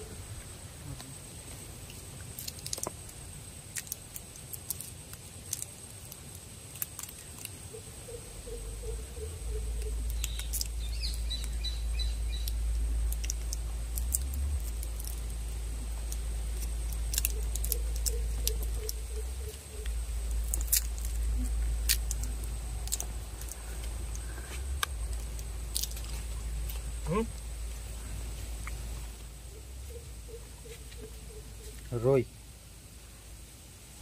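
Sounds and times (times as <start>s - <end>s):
steady low rumble: 5.2s - 34.0s
birds chirping: 7.6s - 32.4s
sharp ticks: 8.5s - 15.4s, 16.0s - 27.5s.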